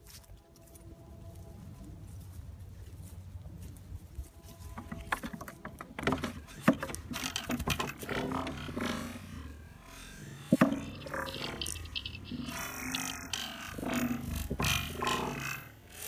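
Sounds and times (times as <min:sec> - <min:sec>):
rustling: 0:00.0 - 0:16.0
hooves clattering on wooden slats: 0:04.5 - 0:15.6.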